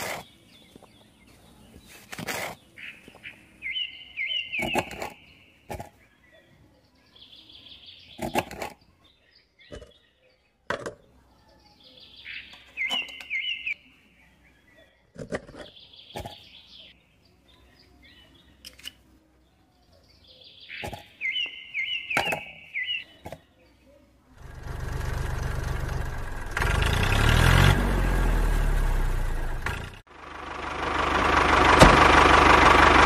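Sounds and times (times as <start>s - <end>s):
bird singing: 0.0s - 24.6s.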